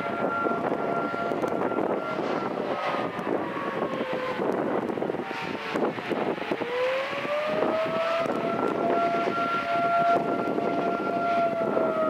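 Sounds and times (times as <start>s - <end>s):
warning siren winding: 0.0s - 4.9s, 5.7s - 12.0s
wind noise on microphone: 0.0s - 12.0s.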